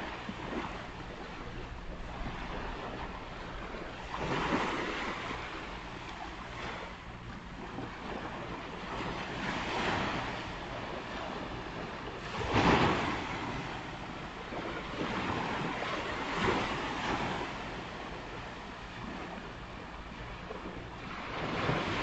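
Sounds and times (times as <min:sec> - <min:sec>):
ocean surf washing onto beach: 0:07.8 - 0:19.5.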